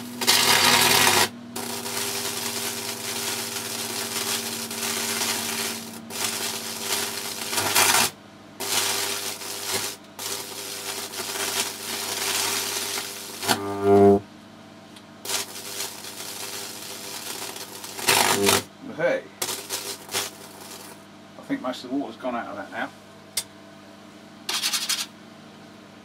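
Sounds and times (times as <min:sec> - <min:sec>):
electric arc crackling: 0:00.0 - 0:14.2, 0:15.2 - 0:18.7, 0:19.4 - 0:21.0
transformer hum: 0:00.0 - 0:14.3.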